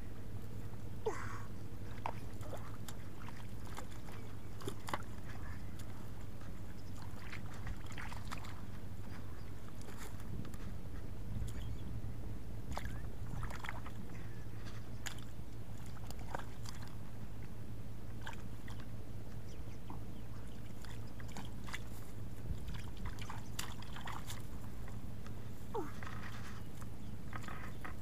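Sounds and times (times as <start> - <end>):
steady low rumble: 0.0 - 28.0
small splashes and squelches: 1.8 - 10.7, 12.7 - 17.0, 18.1 - 19.0, 19.8 - 28.0.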